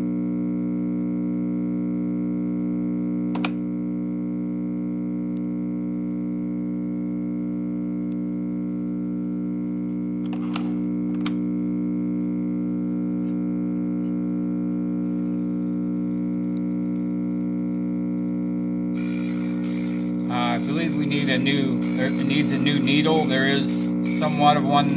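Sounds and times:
record player hum: 0.0s - 24.9s
scratchy needle noise: 7.9s - 24.9s.

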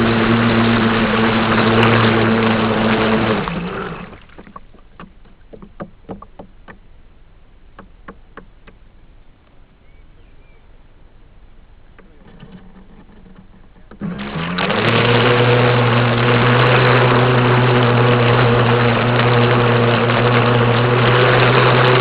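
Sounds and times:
rushing water: 0.0s - 6.4s, 14.0s - 22.0s
rc boat motor hum: 0.0s - 6.8s, 11.8s - 22.0s
water slapping against hull: 0.0s - 6.9s, 11.9s - 22.0s.

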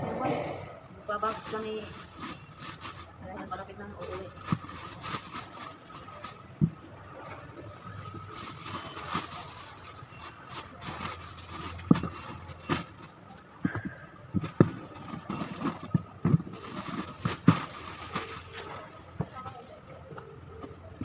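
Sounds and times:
cloth and plastic bags rustling: 1.0s - 21.0s
items thumping into cardboard box: 10.3s - 18.6s.

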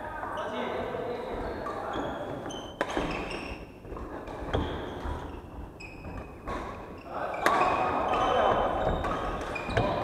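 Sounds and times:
shoes squeaking on wooden floor: 1.2s - 10.0s
racquet hitting shuttlecock: 2.7s - 3.3s, 7.4s - 10.0s.

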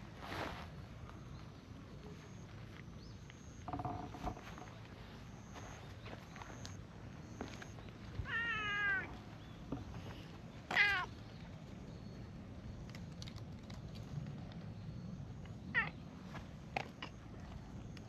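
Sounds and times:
cat meowing: 8.2s - 9.1s, 10.7s - 11.1s, 15.8s - 16.0s.

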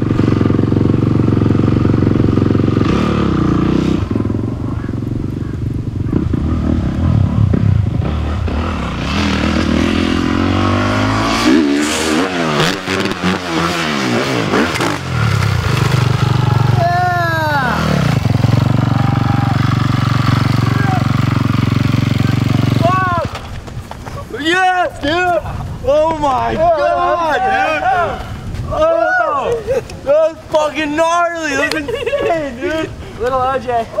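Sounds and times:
dirt bike engine revving: 0.0s - 23.5s.

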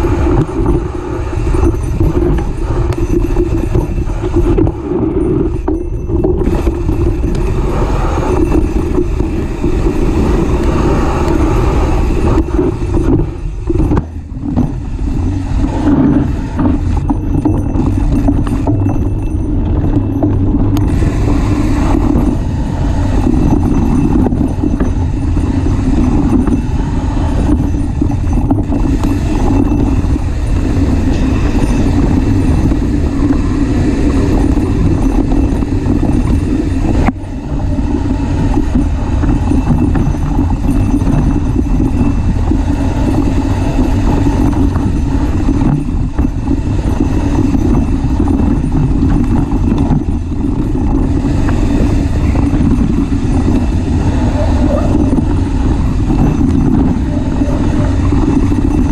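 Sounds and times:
bike tyre rolling over stones: 0.0s - 58.9s
wind rumble on microphone: 0.0s - 58.9s.

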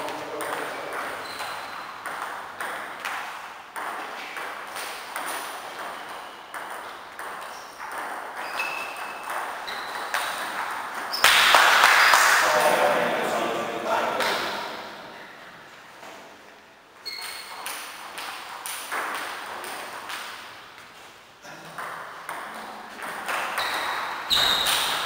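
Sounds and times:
ping pong ball clicking: 0.9s - 10.8s.

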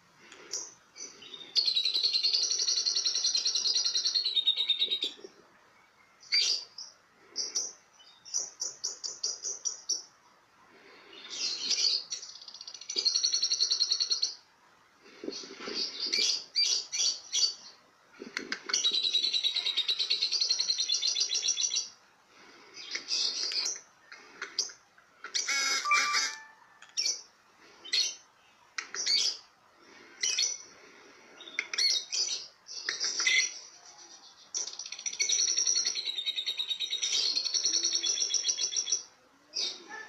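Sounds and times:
parrot chirping and trilling: 24.4s - 28.2s.

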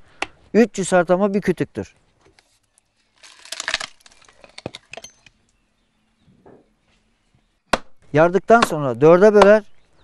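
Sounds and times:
wood cracking: 2.2s - 5.6s.

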